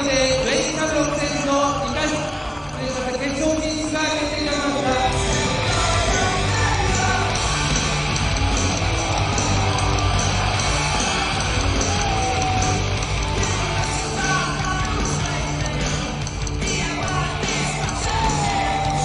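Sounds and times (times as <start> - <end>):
hard rock music: 0.0 - 19.0
shouted vocals: 8.8 - 19.0.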